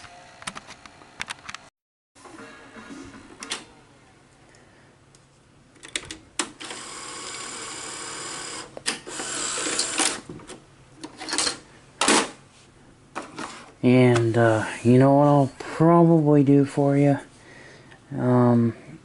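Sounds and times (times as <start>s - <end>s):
transport motor whirring: 6.5s - 10.2s.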